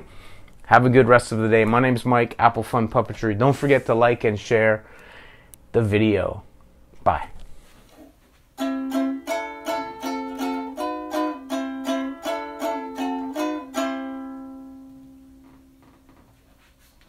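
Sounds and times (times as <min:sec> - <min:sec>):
plucked string instrument tune: 0:08.6 - 0:16.2.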